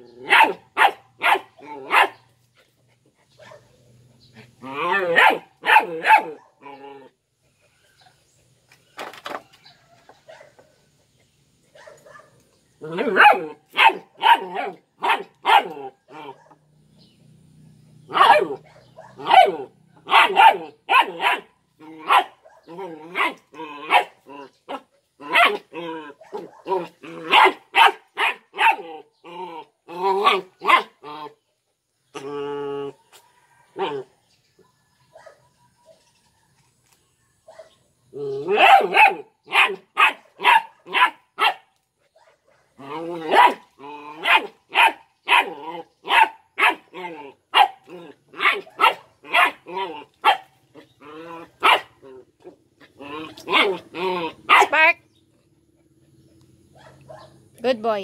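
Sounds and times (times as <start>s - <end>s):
puppy barking: 0.2s - 2.2s, 3.4s - 3.7s, 4.9s - 6.7s, 11.7s - 12.4s, 13.0s - 16.6s, 18.1s - 25.6s, 26.2s - 28.9s, 30.2s - 30.9s, 35.1s - 35.5s, 37.5s - 37.8s, 38.4s - 43.6s, 44.2s - 46.9s, 47.5s - 50.6s, 51.6s - 52.0s, 53.2s - 54.9s, 56.7s - 57.4s.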